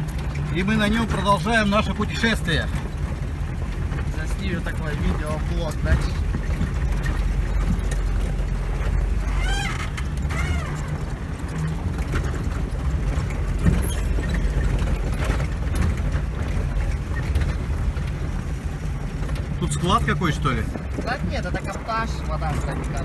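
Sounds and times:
off-road vehicle driving on gravel: 0.0s - 23.0s.

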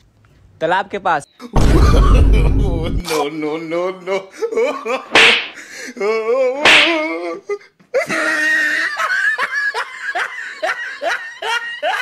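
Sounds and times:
person laughing: 1.6s - 3.2s, 8.0s - 12.0s
sharp smack: 5.2s - 5.6s, 6.7s - 7.1s.

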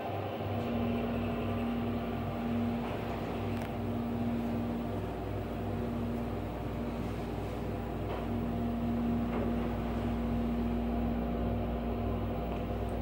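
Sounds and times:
muffled elevator pump motor hum: 0.0s - 13.0s
slow low throb: 0.4s - 13.0s.

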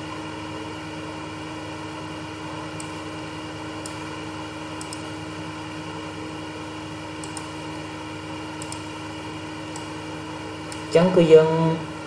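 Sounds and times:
electrical hum: 0.0s - 12.0s
computer mouse clicking: 2.8s - 3.0s, 4.8s - 5.1s, 7.2s - 7.6s, 8.6s - 8.9s, 9.7s - 10.0s.

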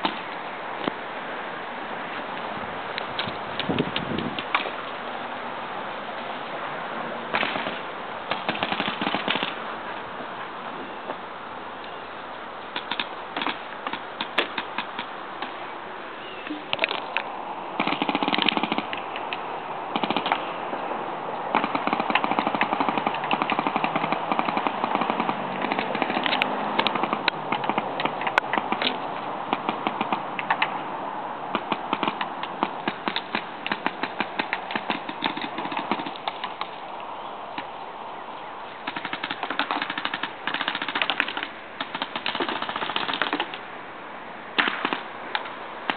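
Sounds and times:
paintball markers firing: 17.8s - 19.3s, 21.6s - 29.0s, 38.9s - 43.6s, 44.6s - 45.5s.

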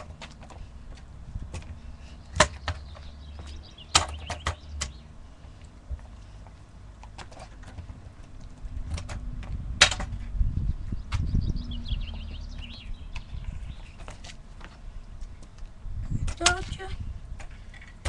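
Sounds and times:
kick scooter rolling over bricks: 0.0s - 4.9s, 5.9s - 10.4s.

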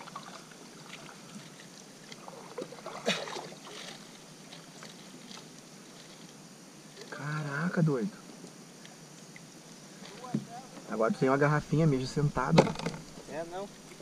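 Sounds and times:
light water sounds: 0.0s - 14.0s
knocks on kayaks: 10.2s - 10.9s, 12.4s - 13.3s.

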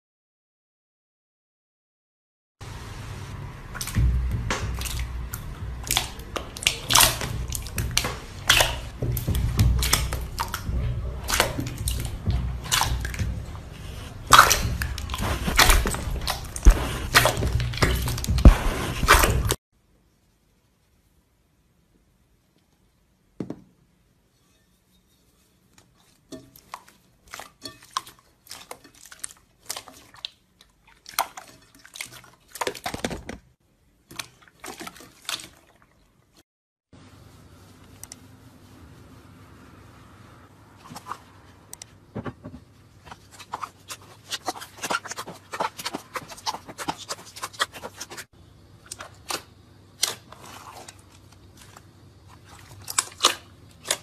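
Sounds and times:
slime squelching and popping: 3.7s - 19.6s, 43.0s - 54.0s.

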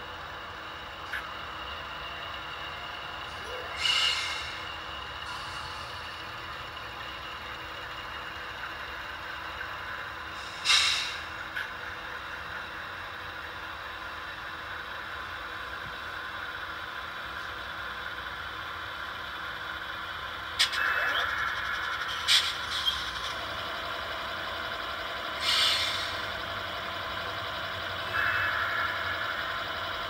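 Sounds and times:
diesel engine sound through small speakers: 0.0s - 30.0s.

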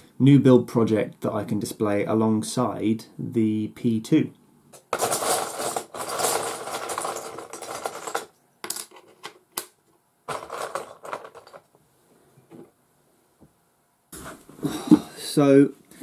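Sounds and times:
rattling clatter of small objects: 4.8s - 9.5s, 10.3s - 11.8s.

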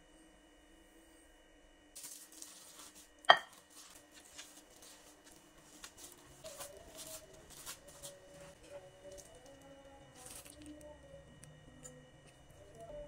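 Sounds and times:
plastic bag crinkling: 2.0s - 8.2s, 9.1s - 11.0s
soft squishing of mash: 2.0s - 13.0s
knock on glass bowl: 3.3s - 3.5s.

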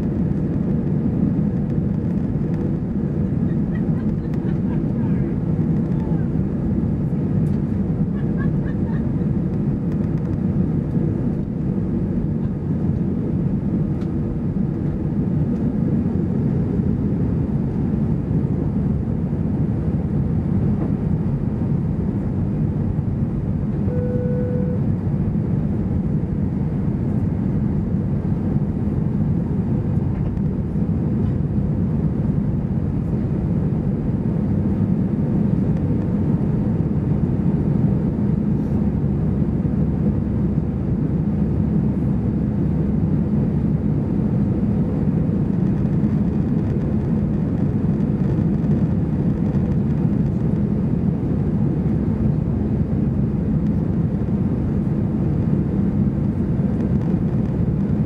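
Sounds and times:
jet engine rumble in cabin: 0.0s - 58.0s
single cabin tone: 23.8s - 24.9s.

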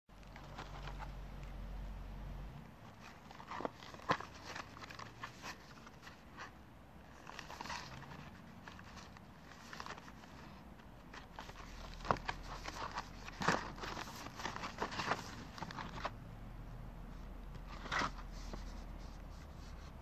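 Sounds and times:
cardboard box scraping and rustling: 17.7s - 18.8s.

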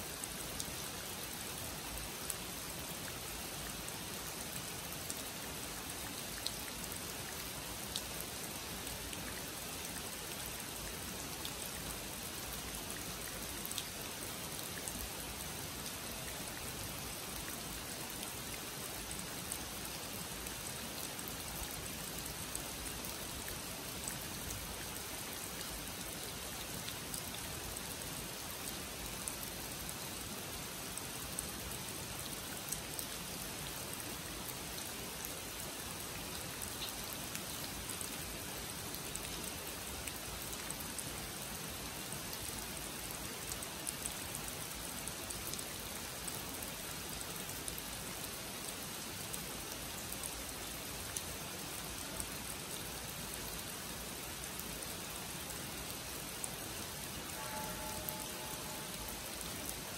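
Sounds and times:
rain on pond and trees: 0.0s - 59.9s
water drips: 57.3s - 59.8s.

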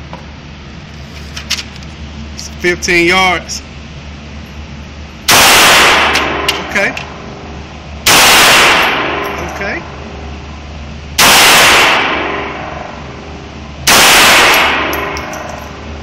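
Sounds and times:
pistol shots ringing: 13.9s - 15.7s.

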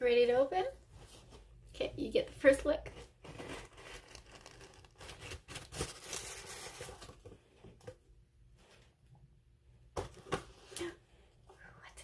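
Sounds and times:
wrapping crinkling: 3.2s - 7.3s.

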